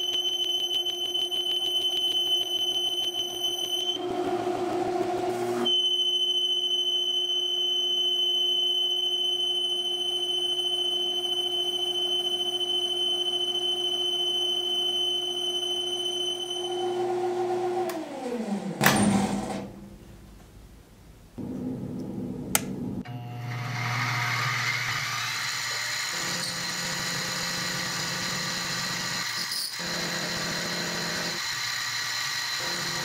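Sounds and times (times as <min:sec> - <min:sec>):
metal lathe whining: 0:23.1 - 0:33.0.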